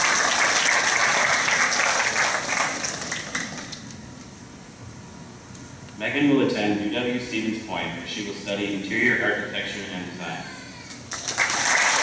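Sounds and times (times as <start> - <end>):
audience applauding: 0.0 - 3.8, 11.1 - 12.0.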